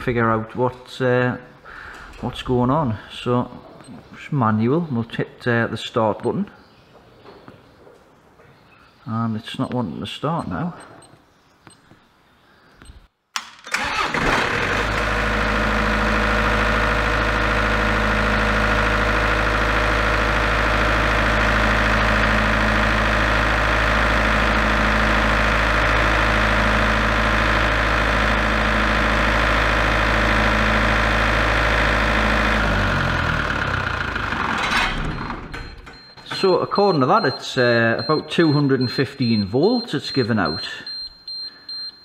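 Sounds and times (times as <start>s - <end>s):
diesel generator engine running: 13.8s - 40.7s.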